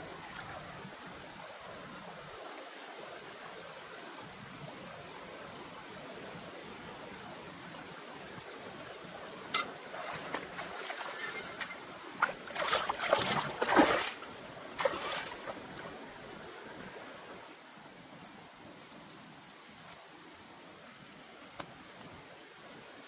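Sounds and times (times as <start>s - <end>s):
water splashing and trickling: 0.0s - 3.6s, 5.6s - 18.1s
running water hiss: 0.0s - 23.0s.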